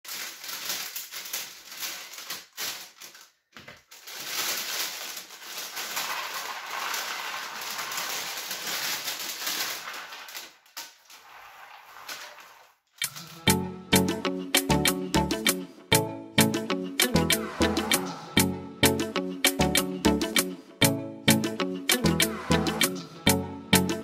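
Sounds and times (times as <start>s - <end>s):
plastic bag crinkling: 0.0s - 13.6s
puzzle pieces pouring into tray: 4.1s - 13.5s.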